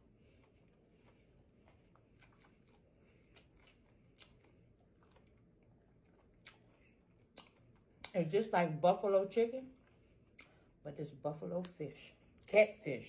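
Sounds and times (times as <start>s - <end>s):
person chewing: 0.0s - 8.2s, 9.8s - 10.8s.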